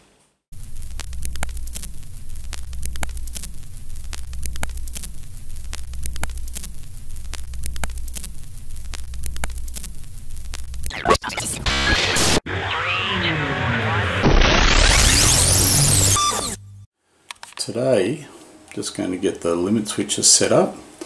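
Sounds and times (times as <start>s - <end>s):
film crackling and popping: 0.5s - 12.2s
steady low hum: 0.6s - 11.0s.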